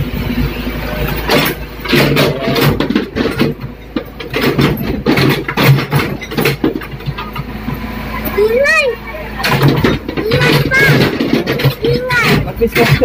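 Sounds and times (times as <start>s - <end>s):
excavator engine running: 0.0s - 13.0s.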